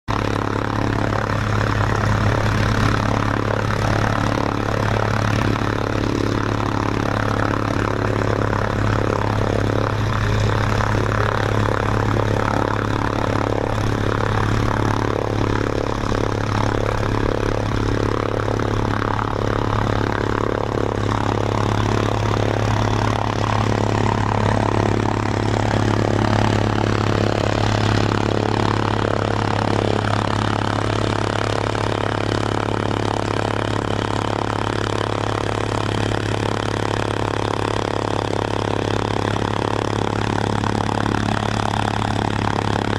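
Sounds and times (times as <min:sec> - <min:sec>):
engine drone: 0:00.0 - 0:42.9.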